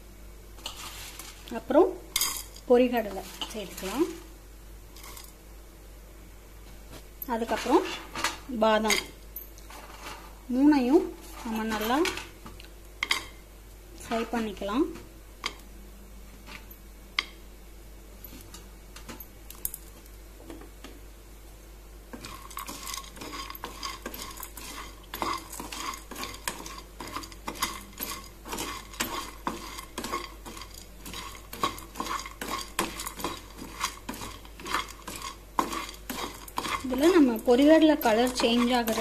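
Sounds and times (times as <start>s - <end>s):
spatula scraping nuts in a pan: 0.6s - 1.6s, 2.2s - 4.2s, 4.9s - 5.4s, 7.3s - 9.1s, 22.2s - 39.0s.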